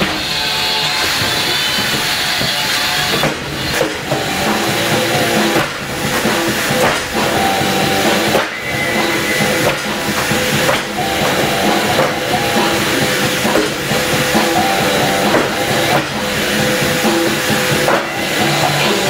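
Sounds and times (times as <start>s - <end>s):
loud dense rock music: 0.0s - 19.0s.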